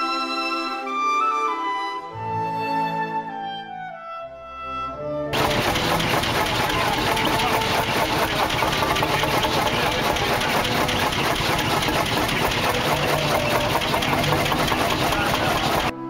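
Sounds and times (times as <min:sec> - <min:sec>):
tractor engine idling: 0:05.4 - 0:16.0.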